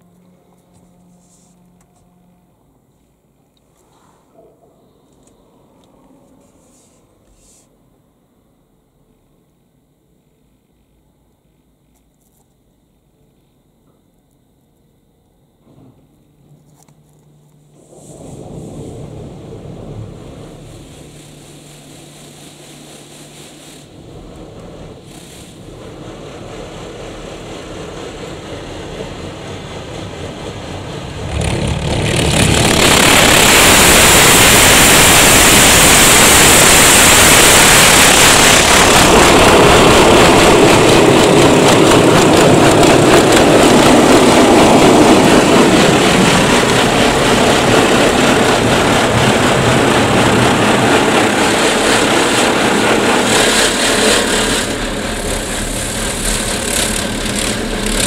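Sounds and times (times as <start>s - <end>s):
water jets spraying on car: 17.8s - 27.6s, 31.2s - 58.0s.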